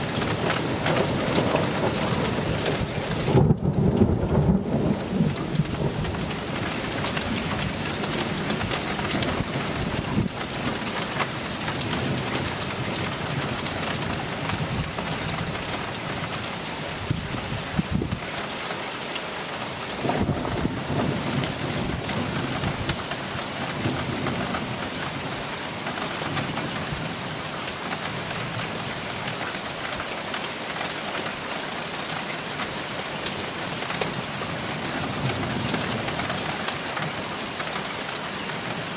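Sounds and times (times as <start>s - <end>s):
thunder rumbling: 0.0s - 16.4s, 20.0s - 25.4s
steady rain: 0.0s - 38.9s.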